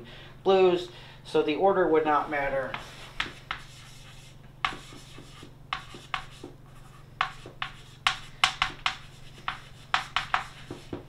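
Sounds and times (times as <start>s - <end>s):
low steady hum: 0.0s - 11.0s
chalk writing on chalkboard: 2.7s - 11.0s.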